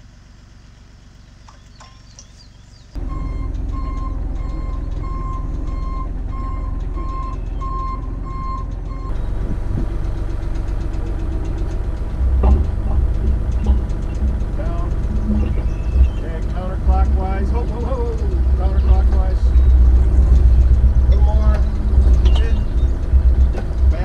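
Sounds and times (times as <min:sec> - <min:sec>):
excavator engine running: 0:00.0 - 0:24.0
beeping warning alarm: 0:03.0 - 0:09.1
heavy low knocks: 0:03.0 - 0:24.0.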